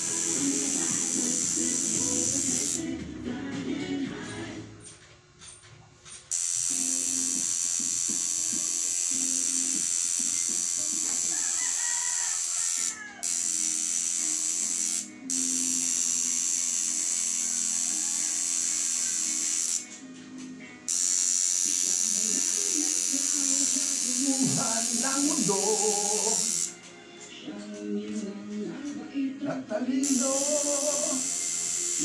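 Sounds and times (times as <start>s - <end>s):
tattoo machine buzzing: 0.0s - 3.0s, 6.3s - 20.0s, 20.8s - 26.8s, 30.0s - 32.0s.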